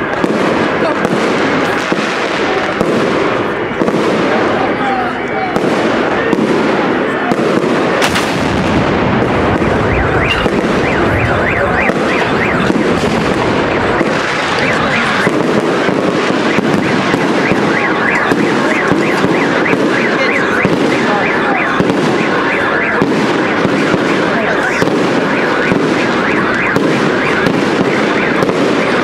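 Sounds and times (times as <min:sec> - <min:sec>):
fireworks crackling barrage: 0:00.0 - 0:29.0
sharp firework bang: 0:05.6 - 0:21.1.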